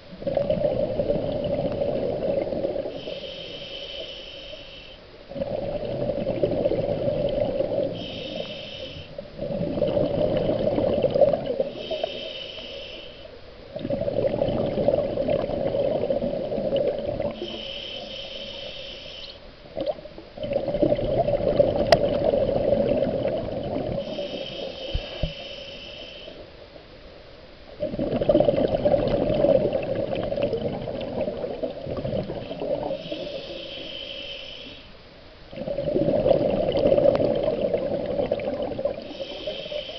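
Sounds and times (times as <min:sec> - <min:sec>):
bubbling exhaled air: 0:00.2 - 0:04.5, 0:05.3 - 0:13.0, 0:13.8 - 0:19.2, 0:19.8 - 0:26.4, 0:27.8 - 0:34.8, 0:35.5 - 0:39.9
regulator hiss on inhale: 0:02.6 - 0:06.3, 0:07.0 - 0:09.6, 0:11.1 - 0:13.6, 0:17.2 - 0:19.6, 0:23.8 - 0:26.6, 0:32.3 - 0:35.3, 0:38.9 - 0:39.9.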